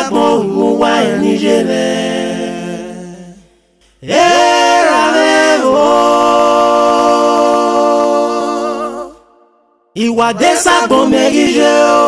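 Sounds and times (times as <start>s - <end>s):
person singing unaccompanied: 0.0s - 3.4s.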